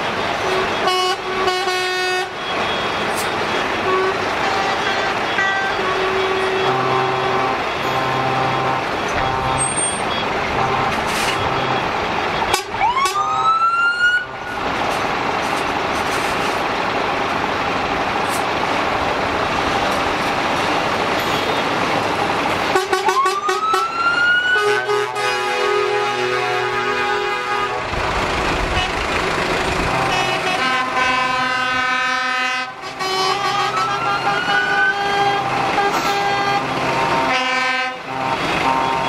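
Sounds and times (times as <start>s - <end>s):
fire truck horn blasts: 0.0s - 16.2s, 22.7s - 27.9s, 28.5s - 39.0s
siren winding up: 7.8s - 14.6s.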